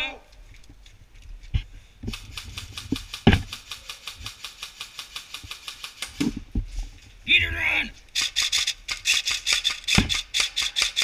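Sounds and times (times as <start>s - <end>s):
airsoft gun rapid firing: 2.1s - 6.2s, 8.2s - 11.0s.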